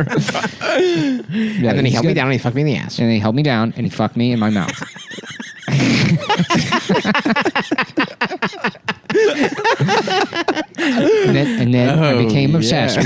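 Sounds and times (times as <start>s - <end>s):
men laughing: 0.0s - 2.0s, 4.2s - 12.0s.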